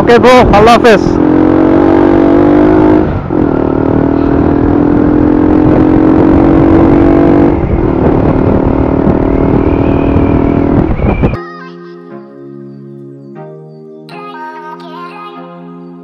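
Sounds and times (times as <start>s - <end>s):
motorcycle engine running: 0.0s - 11.3s
wind and road noise: 0.0s - 11.4s.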